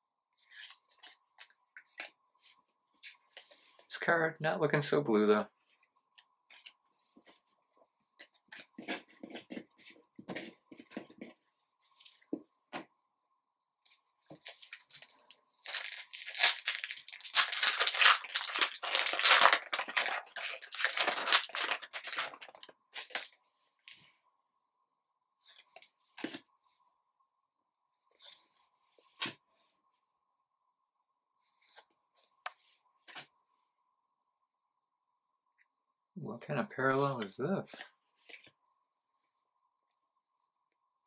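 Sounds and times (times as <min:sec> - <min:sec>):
wrapper tearing and crinkling: 0:14.4 - 0:23.3.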